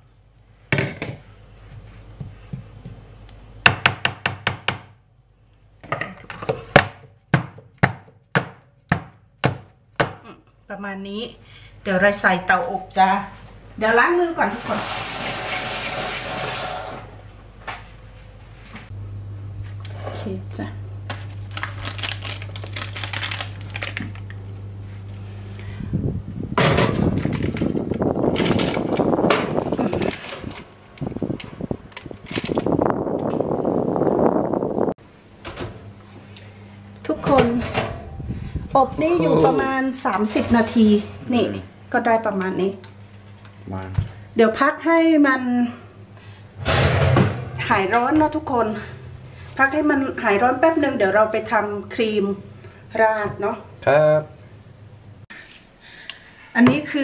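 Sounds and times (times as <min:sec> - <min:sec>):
steady hum: 0:00.0 - 0:57.0
oven fan rushing: 0:11.9 - 0:55.2.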